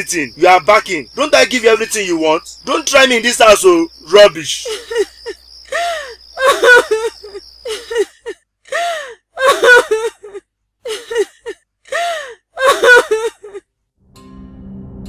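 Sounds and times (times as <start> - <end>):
woman wailing: 4.7 - 13.6
woman gasping sobs: 5.7 - 6.2, 8.7 - 13.6.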